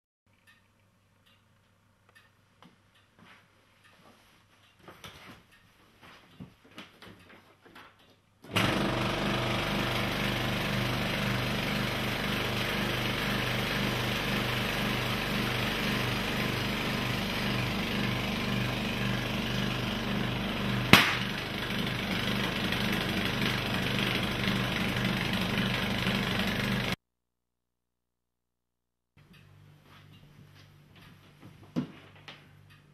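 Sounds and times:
air compressor running: 8.5s - 27.0s
rubber glove bursting bang: 20.9s - 21.4s.

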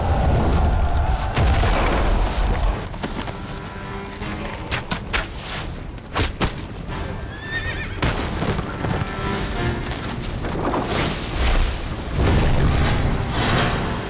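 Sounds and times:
background music: 0.0s - 14.0s
horse whinnying: 7.3s - 8.0s.

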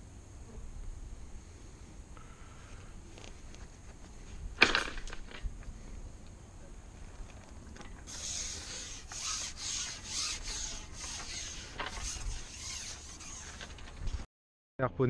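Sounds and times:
fishing pole rasping rubs: 8.1s - 13.8s.

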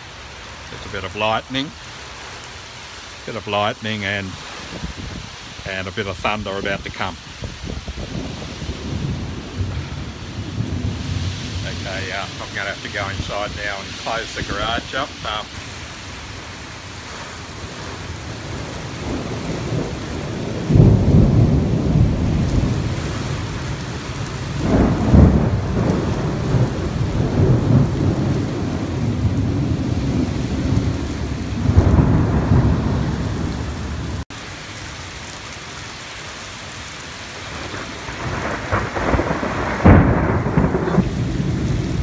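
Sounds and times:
heavy rain falling: 0.0s - 42.0s
thunder rumbling: 3.4s - 34.3s, 37.4s - 42.0s.

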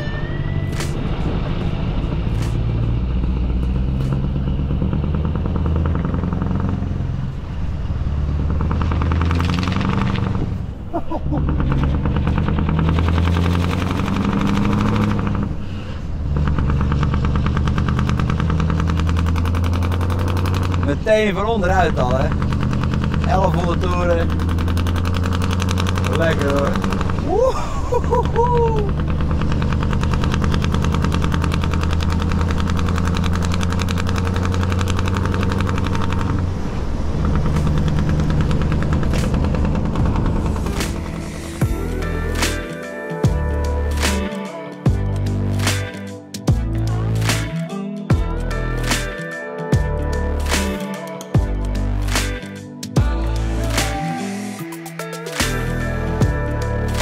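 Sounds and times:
diesel truck engine pulling under load: 0.0s - 42.6s.

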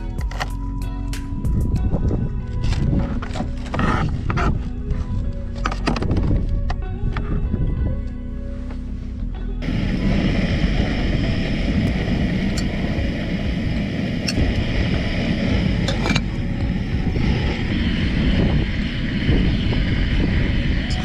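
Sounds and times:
gas stove burner roaring: 9.6s - 21.0s.

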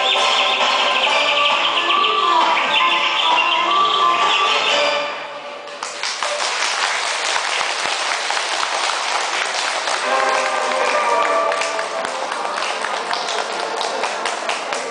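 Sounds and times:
dance music: 0.0s - 5.5s, 9.9s - 12.8s
audience applause: 5.8s - 14.9s.

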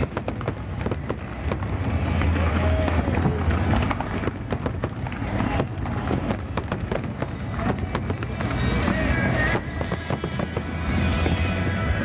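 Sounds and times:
low rumble of bursting shells: 0.0s - 8.6s
fireworks pops and crackles: 0.0s - 11.6s.

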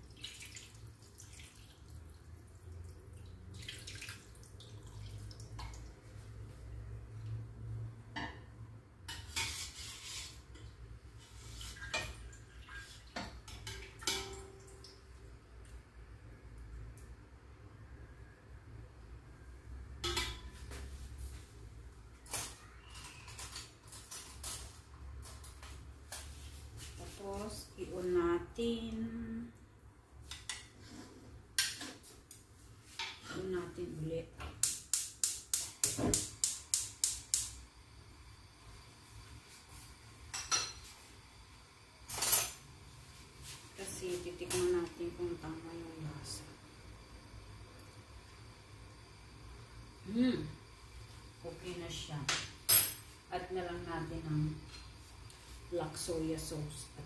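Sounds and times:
gravy trickling and splashing: 0.0s - 6.3s, 10.7s - 15.8s
kitchen utensils clinking: 13.2s - 14.6s, 52.2s - 53.1s.

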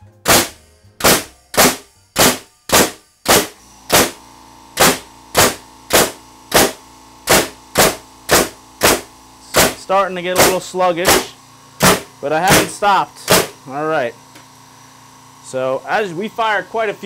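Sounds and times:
nail gun firing into wood: 0.2s - 13.6s
air compressor humming: 0.2s - 17.0s.

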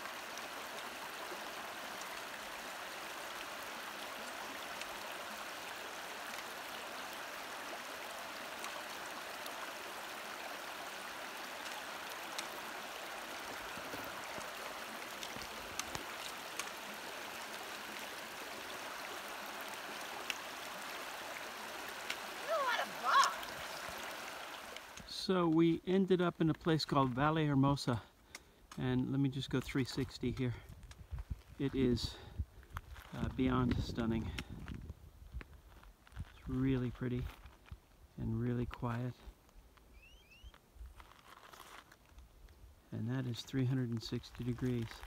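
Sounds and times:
river flowing over stones: 0.0s - 25.2s
faint clicks: 28.2s - 28.8s.

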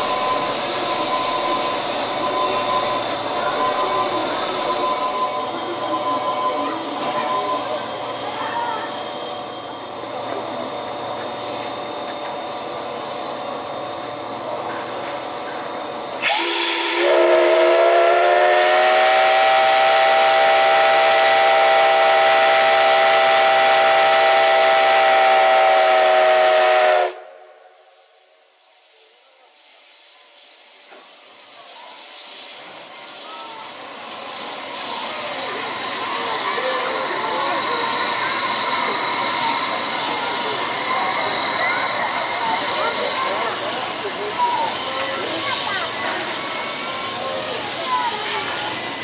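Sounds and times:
steam hissing: 0.0s - 49.0s
steam whistle blast: 16.2s - 28.0s.

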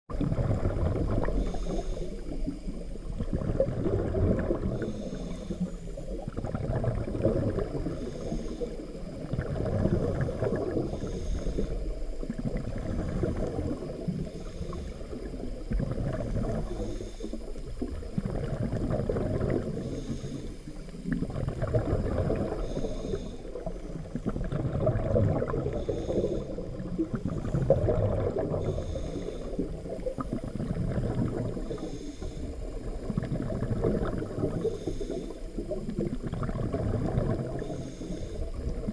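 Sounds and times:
underwater breathing bubbles: 0.1s - 38.9s
breath hiss: 1.2s - 2.9s, 4.5s - 6.2s, 7.8s - 9.2s, 10.8s - 12.2s, 13.8s - 15.6s, 16.3s - 18.1s, 19.7s - 21.2s, 22.4s - 24.1s, 25.6s - 27.6s, 28.4s - 30.2s, 31.5s - 33.1s, 34.4s - 35.9s, 37.4s - 38.9s.

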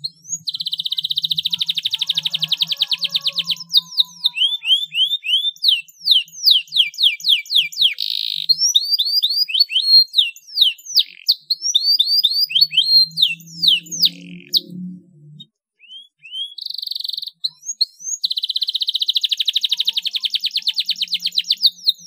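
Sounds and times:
canary singing: 0.0s - 22.0s.

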